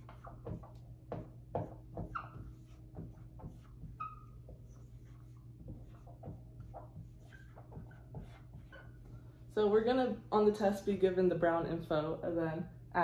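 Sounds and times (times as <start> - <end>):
marker squeaks: 0.0 - 0.8, 1.6 - 9.0
marker scratching on whiteboard: 0.0 - 9.1.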